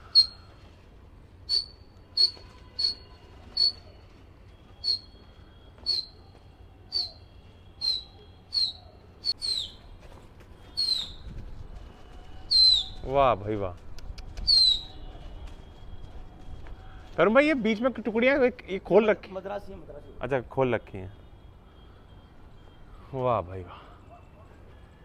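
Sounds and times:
small bird chirping: 0.0 - 0.5, 4.8 - 5.2, 7.8 - 9.8, 10.7 - 11.3, 12.5 - 13.0, 14.1 - 15.0.

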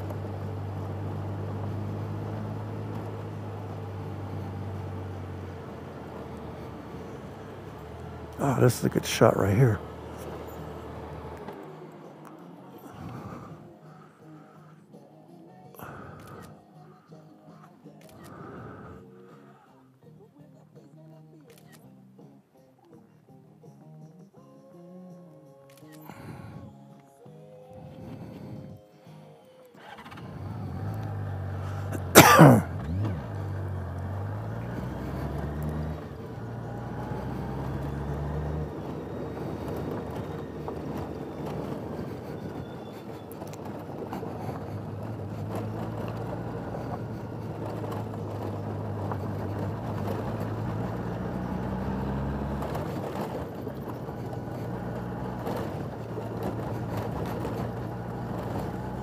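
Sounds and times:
motorcycle engine revving: 0.0 - 12.0, 29.8 - 59.0.

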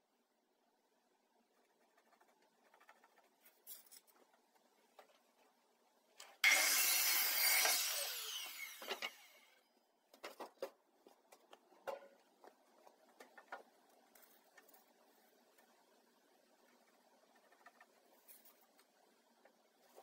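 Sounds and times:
mitre saw cutting wood: 6.4 - 9.6
saw blade winding down: 6.4 - 9.6.

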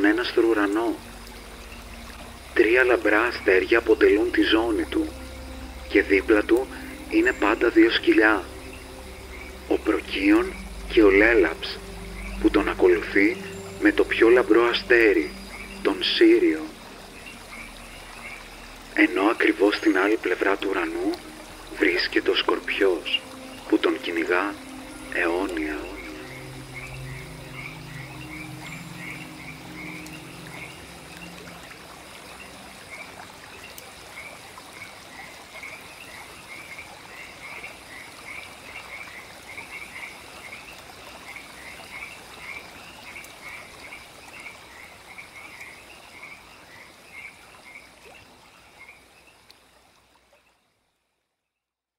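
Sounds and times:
faint high pulsing hum: 0.0 - 33.6
low drone tone: 0.0 - 34.2
frogs croaking in chorus: 0.0 - 51.0.

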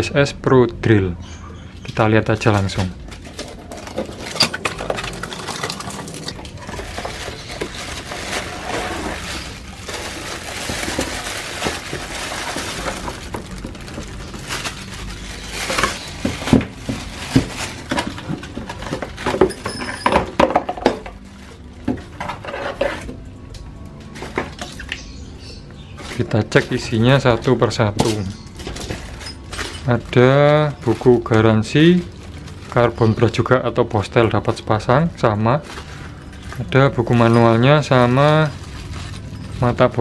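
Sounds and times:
plastic crinkling: 2.4 - 19.8, 24.0 - 40.0
cardboard flaps scraping: 6.7 - 14.6.

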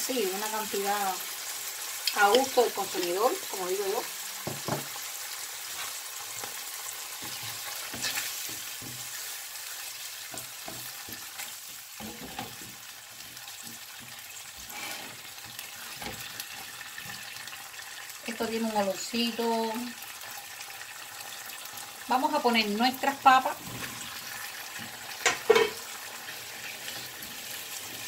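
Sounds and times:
sauce sizzling in a frying pan: 0.0 - 28.0
knocks against the pan: 4.4 - 4.9, 25.2 - 25.8
spatula scraping a pan: 5.6 - 17.5, 23.5 - 28.0.

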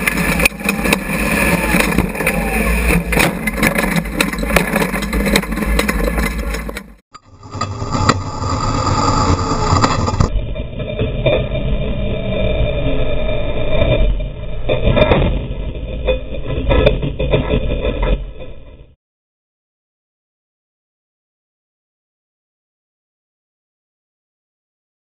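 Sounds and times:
suspension knocks and clatters: 0.0 - 7.0
race car engine running: 0.0 - 13.6.

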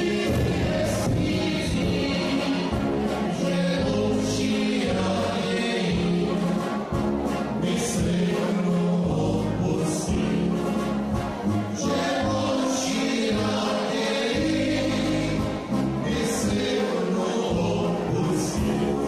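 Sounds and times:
low bass line: 0.0 - 12.6, 14.4 - 16.8
live dance band with singing: 0.0 - 19.0.

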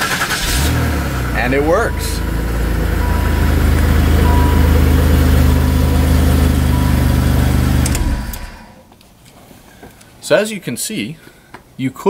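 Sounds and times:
car engine idling: 0.0 - 8.8.

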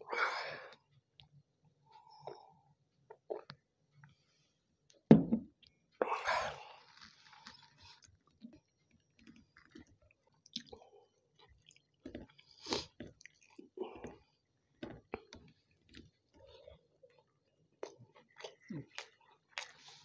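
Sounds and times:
person chewing food: 6.5 - 20.0.

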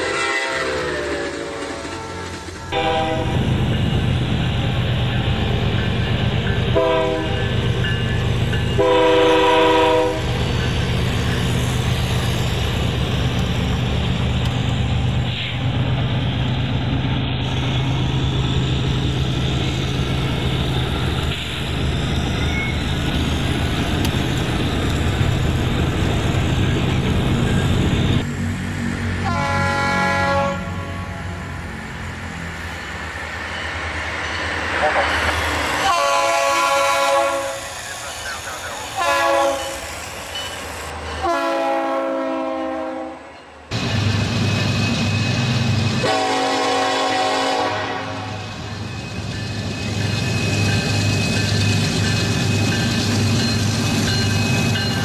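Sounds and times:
electronic train horn: 0.0 - 3.6, 6.7 - 7.5, 8.7 - 10.4, 29.2 - 31.3, 35.8 - 37.7, 39.0 - 39.8, 41.2 - 43.4, 46.0 - 48.6.

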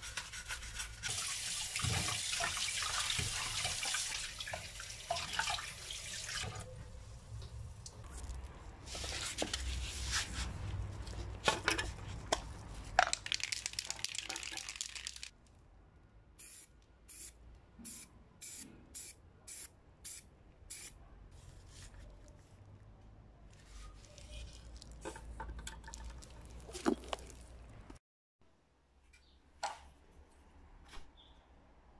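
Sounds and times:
spray paint can hissing: 16.4 - 20.9.

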